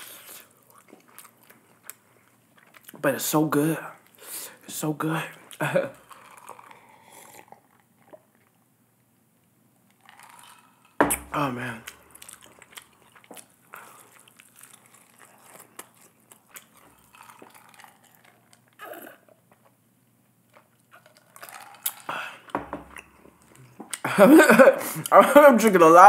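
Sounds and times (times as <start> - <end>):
chewing and mouth smacks: 0.2 - 3.0, 5.3 - 8.6, 9.9 - 24.0
drinking ice water from glass: 5.5 - 8.3, 9.9 - 19.7, 20.6 - 24.0.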